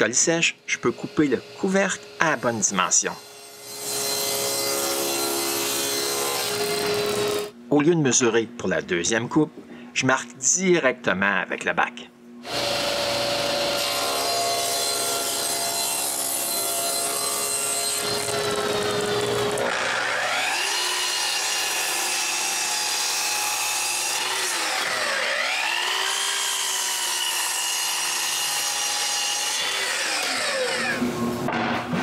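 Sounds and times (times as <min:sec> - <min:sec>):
table saw running: 0:00.7 - 0:07.5, 0:12.5 - 0:31.3
miter saw motor whining: 0:12.4 - 0:31.4.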